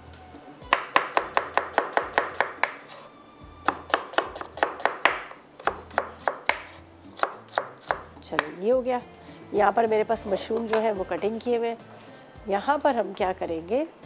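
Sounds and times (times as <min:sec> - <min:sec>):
knife chopping vegetables on board: 0:00.7 - 0:08.6.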